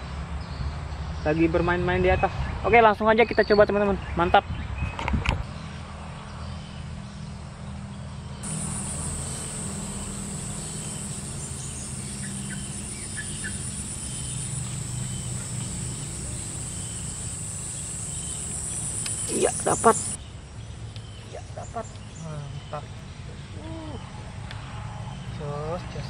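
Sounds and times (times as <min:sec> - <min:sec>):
insects droning: 0:08.4 - 0:20.2
low background hum: 0:08.4 - 0:20.2.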